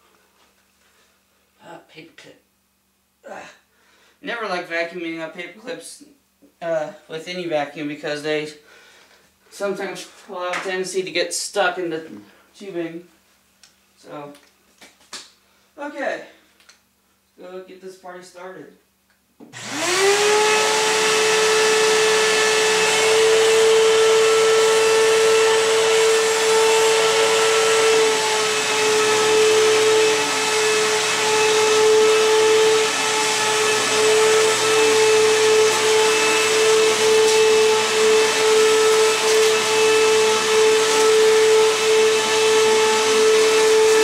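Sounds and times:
vacuum cleaner motor whine: 19.6 - 44.0.

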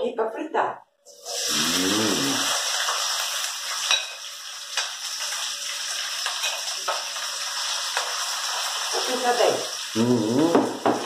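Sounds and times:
vegetables sizzling in oil: 1.1 - 11.0.

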